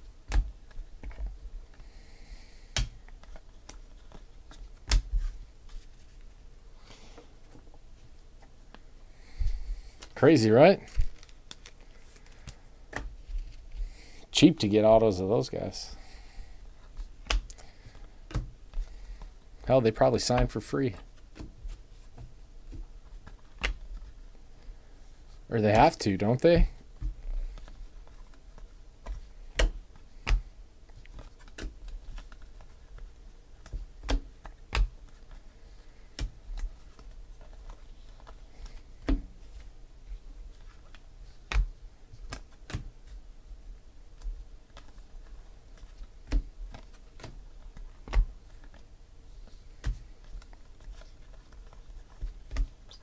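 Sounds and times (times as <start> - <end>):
trading cards clicking and snapping: 2.7 - 5.3, 10.9 - 13.5, 17.2 - 19.3, 22.2 - 23.9, 27.0 - 35.4, 40.8 - 42.9, 44.2 - 48.9.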